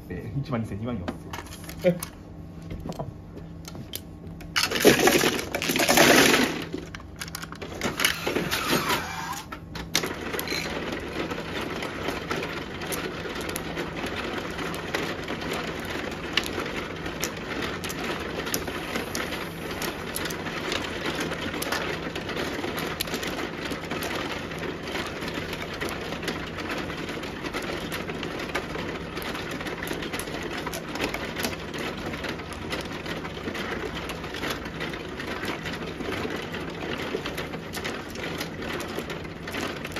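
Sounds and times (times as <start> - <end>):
shuffling mechanism humming: 0.0 - 39.9
mahjong tiles clattering: 4.6 - 9.4.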